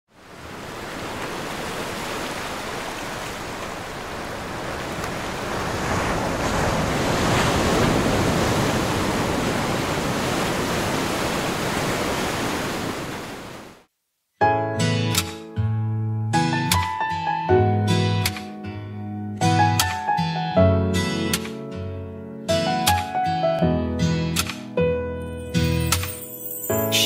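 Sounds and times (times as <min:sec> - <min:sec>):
sea waves washing on sand: 0:00.1 - 0:13.8.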